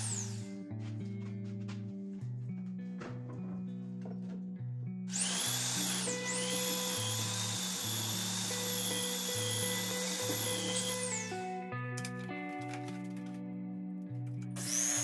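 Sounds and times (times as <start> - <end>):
power tool whining on wood: 0.0 - 0.5, 5.1 - 11.5, 14.6 - 15.0
background music: 0.0 - 15.0.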